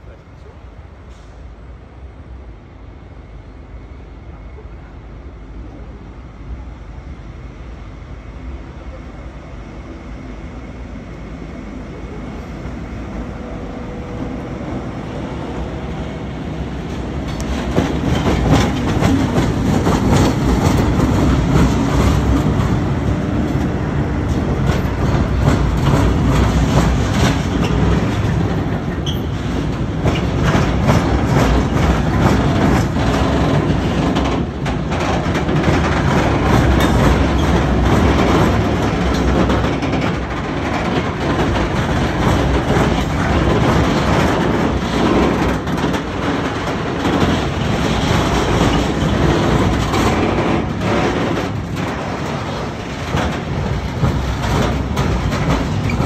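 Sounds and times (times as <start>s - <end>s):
diesel locomotive engine: 0.0s - 56.0s
wheels clacking over rail joints: 16.7s - 56.0s.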